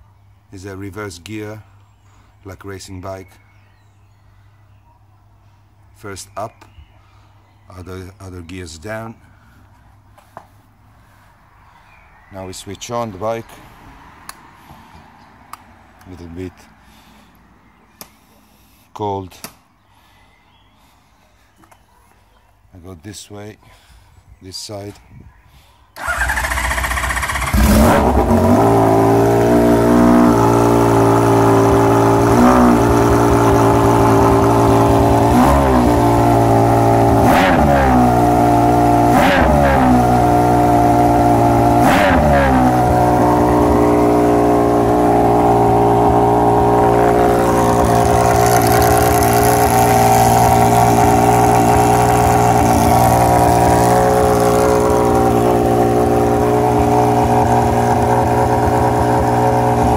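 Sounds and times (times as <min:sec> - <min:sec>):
motorcycle engine revving and idling: 0:26.0 - 0:59.9.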